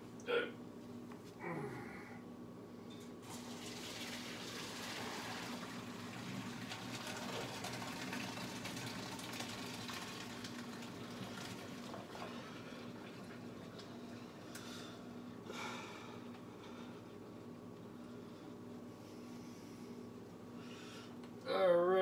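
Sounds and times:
water running into sink: 3.2s - 14.1s.

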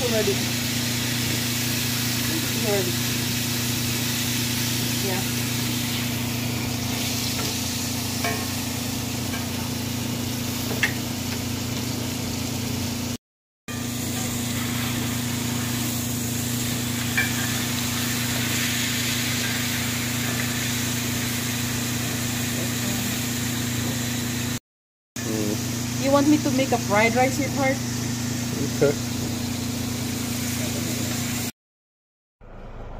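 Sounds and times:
steak sizzling in skillet: 0.0s - 24.6s, 25.6s - 31.5s
low hum: 32.4s - 32.9s.

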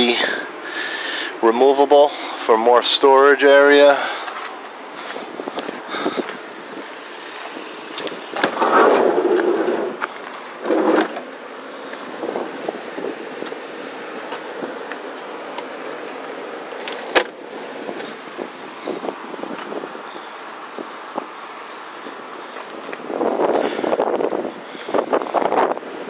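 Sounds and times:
car seats and sliding door clunking: 7.4s - 13.6s, 16.8s - 18.2s.

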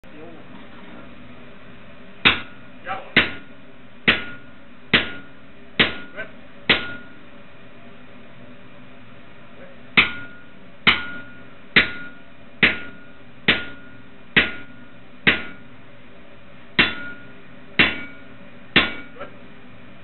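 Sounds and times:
hammer clanking on metal punch: 2.2s - 2.6s, 3.2s - 3.5s, 4.1s - 7.2s, 10.0s - 15.7s, 16.8s - 19.2s.

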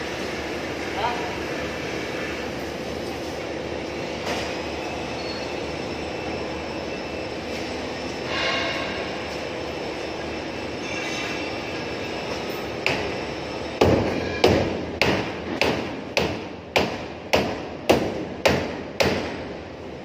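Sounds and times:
hammer striking sheet metal: 13.8s - 19.5s.

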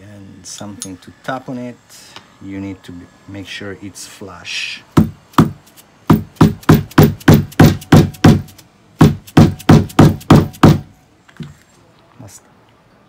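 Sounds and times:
mallet tapping steel tool: 5.0s - 10.9s.

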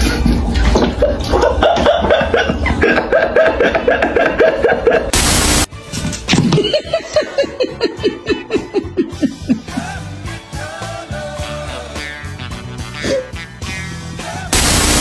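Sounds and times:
dubbed laughter: 0.9s - 5.2s, 6.5s - 10.2s.

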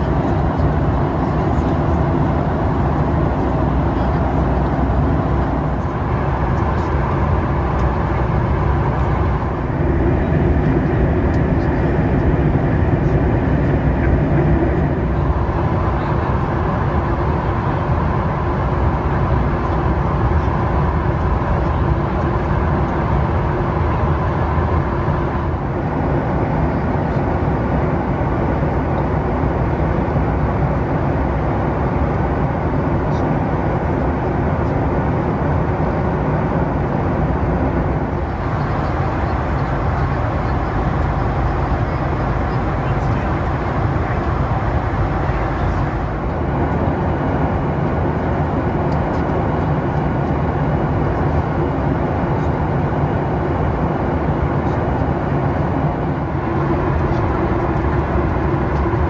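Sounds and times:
airplane cabin rumble: 0.0s - 59.0s.

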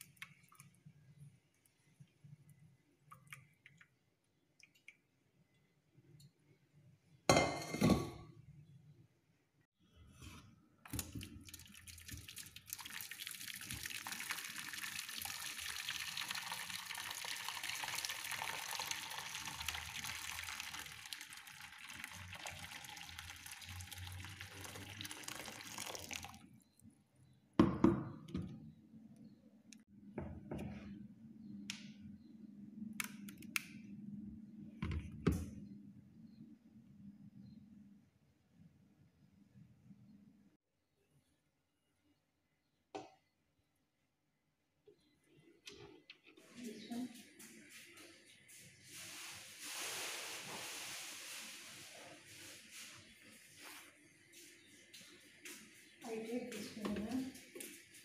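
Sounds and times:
water running from tap: 11.0s - 26.4s.

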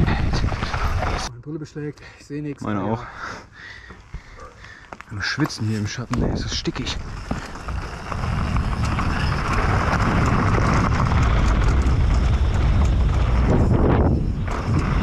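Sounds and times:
bike rattles and clicks: 0.0s - 1.3s, 3.8s - 15.0s
wind rumbling on microphone: 0.0s - 1.3s, 6.0s - 15.0s
tyres rolling over trail: 0.0s - 1.4s, 2.6s - 15.0s.

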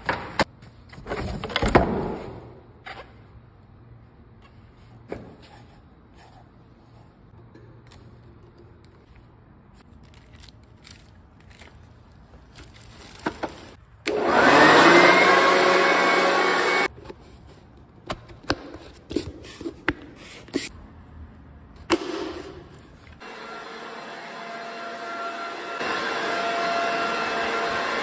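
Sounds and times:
electric blower motor whine: 14.1s - 16.9s, 23.2s - 28.0s.

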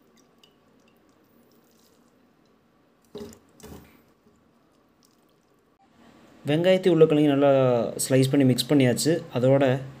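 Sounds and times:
water dripping: 0.0s - 5.8s.

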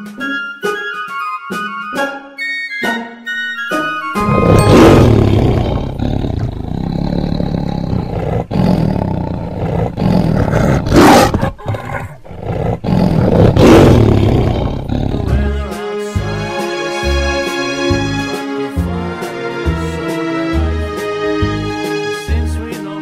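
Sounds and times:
animal roaring: 4.2s - 15.4s
rumbling growl: 4.2s - 15.5s.

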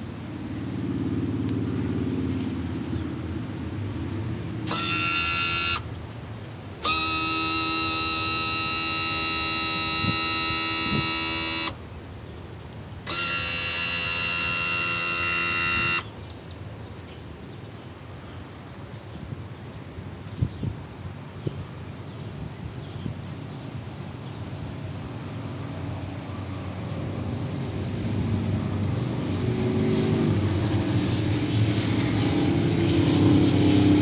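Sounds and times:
electric trim motor whining: 4.6s - 6.0s, 6.8s - 11.8s, 13.0s - 16.1s.

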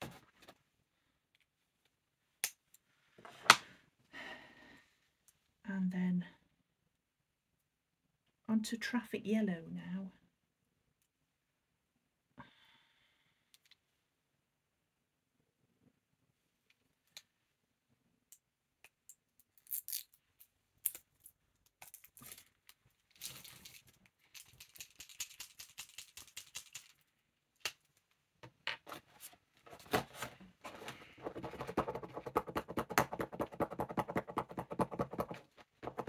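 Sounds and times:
marker nib tapping on pad: 31.4s - 36.0s.

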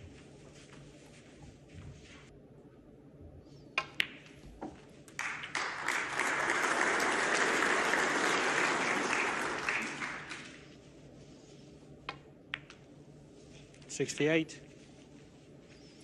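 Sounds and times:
snooker balls clicking: 3.8s - 5.5s, 12.0s - 12.9s
audience applauding: 5.1s - 10.7s.

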